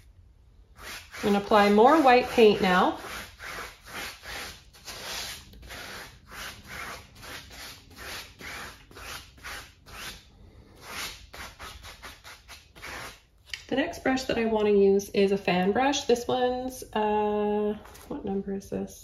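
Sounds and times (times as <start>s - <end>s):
brush scrubbing paint on canvas: 0.7s - 13.2s.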